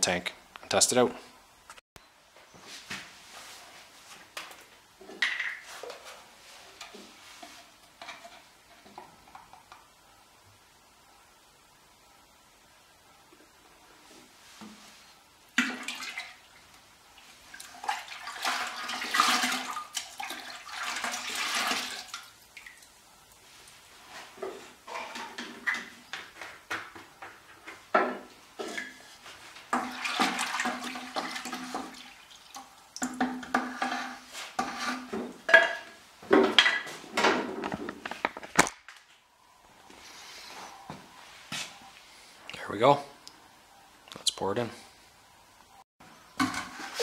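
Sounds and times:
liquid sloshing in plastic pail: 0:17.5 - 0:22.8, 0:29.7 - 0:33.8.

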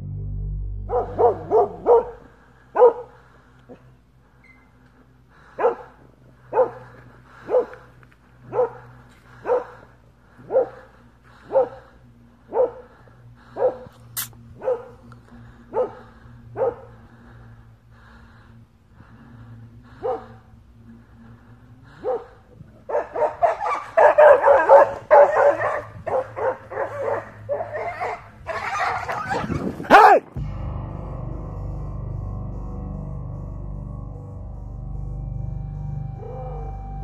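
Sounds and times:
dog barking: 0:00.9 - 0:03.8, 0:05.5 - 0:13.9, 0:14.6 - 0:15.0, 0:15.7 - 0:17.0, 0:19.9 - 0:20.4, 0:21.9 - 0:30.3.

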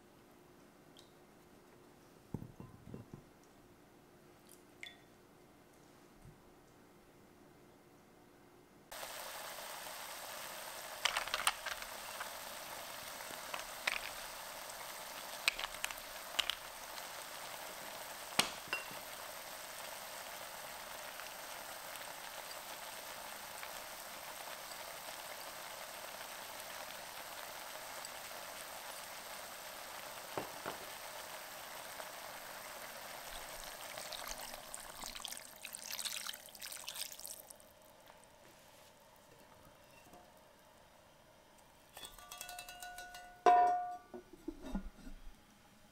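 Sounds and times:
water pouring into pot: 0:08.9 - 0:37.7
liquid simmering with sizzle: 0:08.9 - 0:41.3
food dropping into pot clicks: 0:13.5 - 0:14.2, 0:15.4 - 0:16.7, 0:18.4 - 0:18.9.

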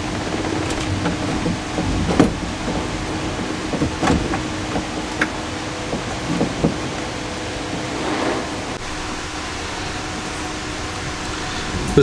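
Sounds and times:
gauge cluster clicks and knocks: 0:00.0 - 0:07.9
steady background hiss and hum: 0:00.0 - 0:12.0.

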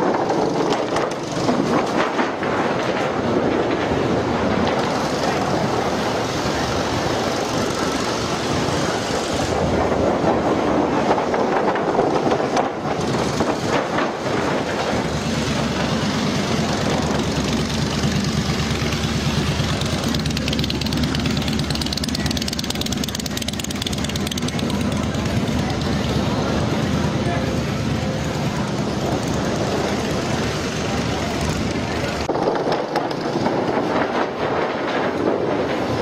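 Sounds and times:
engine running steadily: 0:00.0 - 0:36.0.

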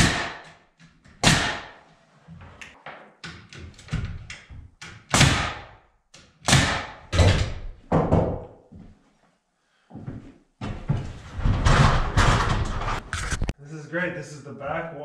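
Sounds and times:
knocks on wooden wall: 0:06.6 - 0:08.6.

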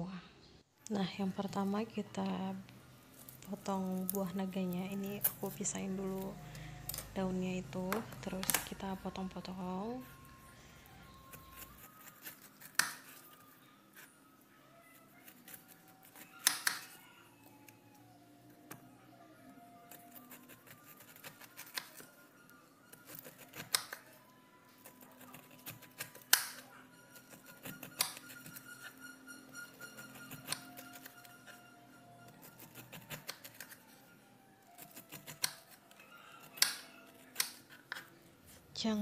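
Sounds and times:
soft background music: 0:00.0 - 0:39.0
knife cutting pineapple skin: 0:03.1 - 0:10.5, 0:11.1 - 0:14.2, 0:14.8 - 0:17.7, 0:19.6 - 0:22.2, 0:22.8 - 0:34.0, 0:34.6 - 0:38.1.

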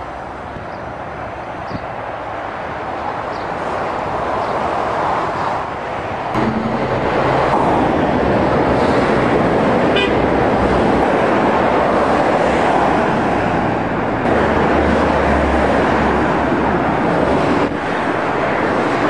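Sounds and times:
heavy motorway traffic: 0:00.0 - 0:19.0
low engine hum: 0:06.3 - 0:11.8.

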